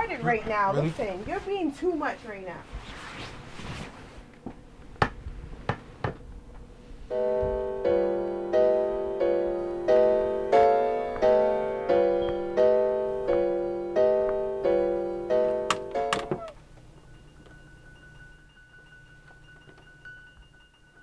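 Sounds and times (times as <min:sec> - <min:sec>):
faint room noise: 0:00.0 - 0:21.0
piano chord struck repeatedly: 0:07.1 - 0:16.6.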